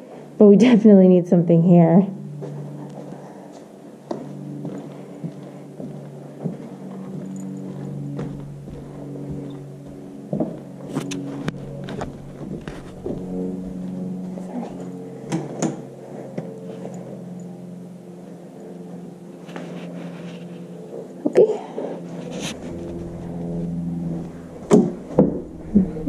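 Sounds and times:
steady low hum: 0.0 - 26.0
footsteps on carpet: 2.4 - 14.9, 22.1 - 26.0.

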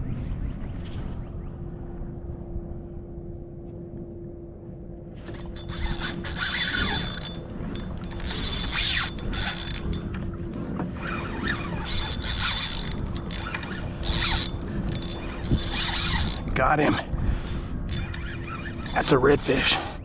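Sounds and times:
fishing reel ratcheting and whirring: 5.2 - 10.3, 11.0 - 16.6, 17.2 - 19.9.

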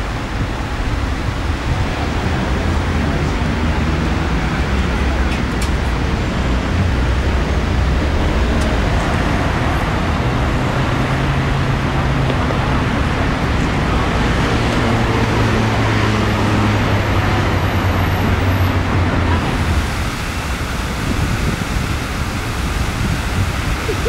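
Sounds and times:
large vehicle engines humming: 0.0 - 24.0
passing cars: 0.0 - 24.0.

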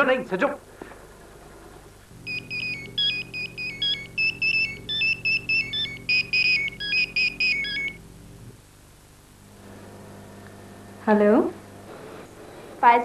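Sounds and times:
low steady hum: 0.0 - 13.0
mobile phone ringing: 2.2 - 8.0.

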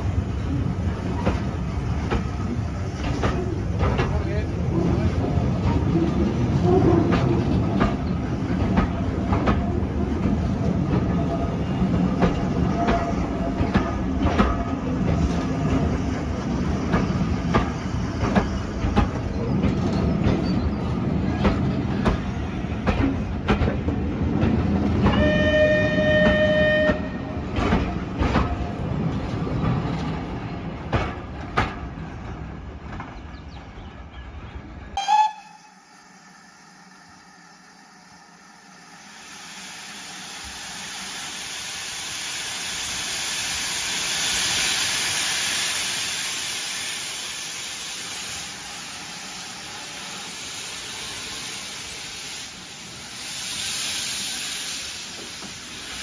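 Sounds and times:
train rumbling past: 0.0 - 56.0
steam locomotive whistle: 25.1 - 27.3, 35.0 - 36.4.

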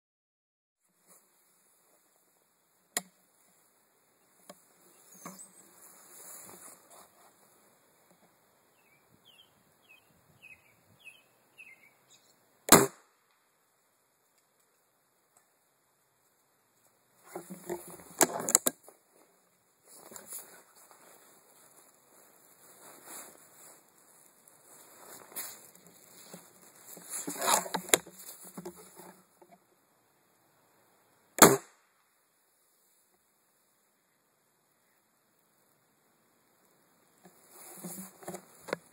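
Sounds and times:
small bird chirping: 4.9 - 5.8, 8.7 - 12.4
rifle shot: 12.7 - 13.1, 31.4 - 31.8
rifle handling rustles and knocks: 17.2 - 19.3, 24.7 - 29.6, 37.2 - 38.9.

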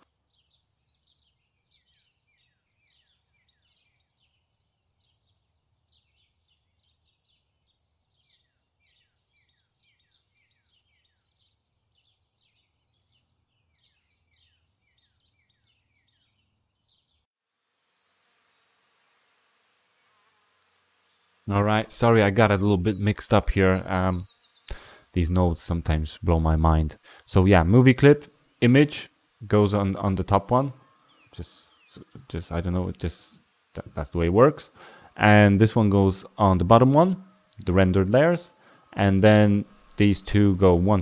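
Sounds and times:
faint birdsong chirps: 0.0 - 41.0
thin steady hiss: 17.5 - 41.0.

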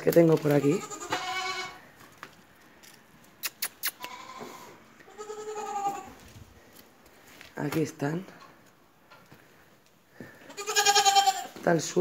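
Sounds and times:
livestock bleating: 0.6 - 1.9, 4.0 - 6.2, 10.4 - 11.6.

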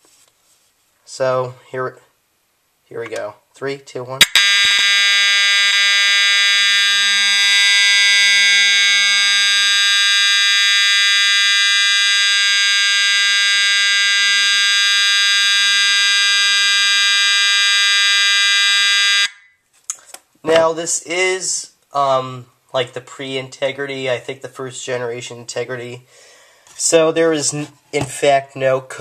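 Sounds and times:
fire alarm horn steady tone: 4.2 - 19.6.

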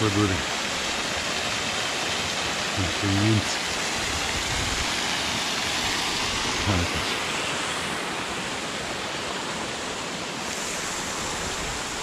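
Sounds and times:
stream water rushing: 0.0 - 12.0.

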